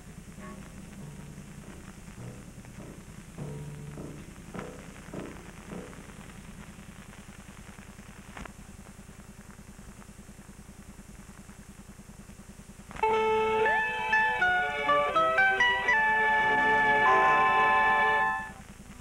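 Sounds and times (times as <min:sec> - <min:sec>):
faint crackle: 0:00.0 - 0:13.8, 0:18.4 - 0:19.0
low hum and buzz with flutter: 0:00.0 - 0:14.1, 0:18.2 - 0:19.0
plucked-string music: 0:00.3 - 0:06.1, 0:13.0 - 0:18.6.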